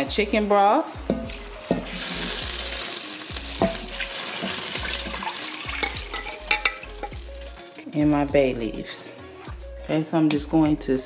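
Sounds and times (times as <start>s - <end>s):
liquid splashing and sizzling in pot: 1.0s - 8.2s.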